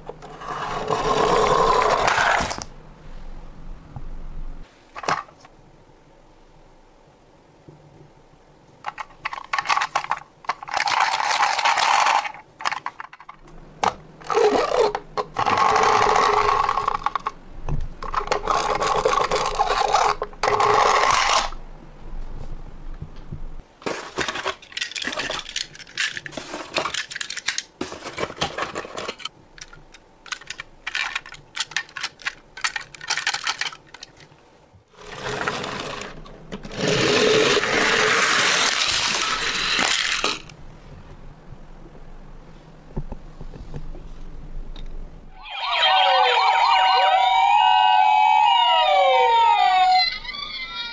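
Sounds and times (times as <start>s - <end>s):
toy cars whirring on wooden floor: 0.2s - 2.7s, 10.6s - 12.8s, 14.2s - 17.3s, 18.1s - 21.6s, 34.9s - 40.5s
toy cars clicking and clattering: 8.9s - 13.4s, 14.2s - 17.4s, 18.0s - 21.6s, 23.9s - 34.3s, 35.0s - 40.5s.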